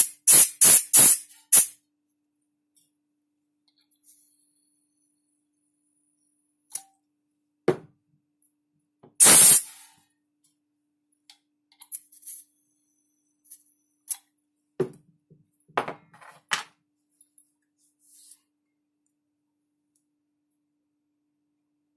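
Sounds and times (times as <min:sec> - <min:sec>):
gas hiss venting: 0:09.2 - 0:09.9.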